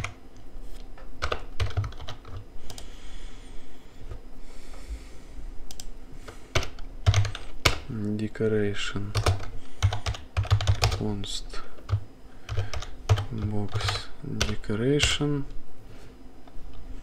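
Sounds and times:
keyboard typing: 0:01.2 - 0:02.9, 0:06.5 - 0:07.9, 0:09.1 - 0:11.0, 0:11.8 - 0:15.2.

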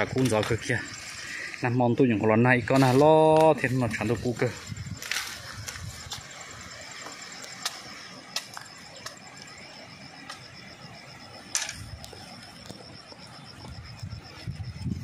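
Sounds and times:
high pulsing insect trill: 0:00.0 - 0:15.0
bamboo stakes clacking: 0:02.7 - 0:03.9.

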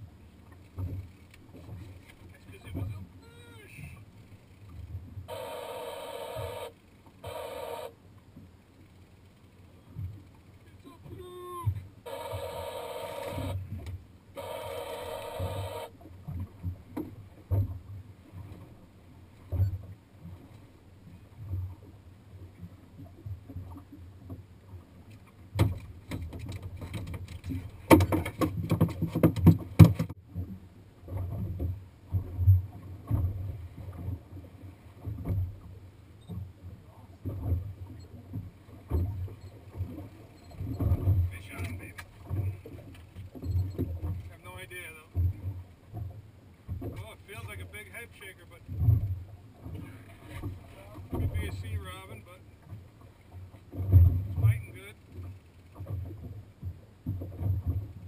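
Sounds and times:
buzzing pitched tone: 0:05.3 - 0:08.0, 0:12.1 - 0:13.6, 0:14.4 - 0:15.9
water slapping against boat hull: 0:15.4 - 0:18.8, 0:22.5 - 0:58.0
sharp knocks and clatter: 0:25.5 - 0:30.2.

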